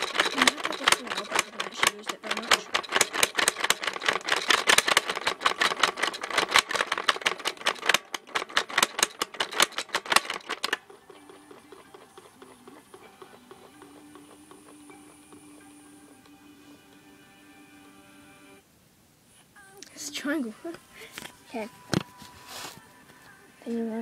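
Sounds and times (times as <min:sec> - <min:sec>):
toy spinning machine clattering: 0:00.0 - 0:16.4.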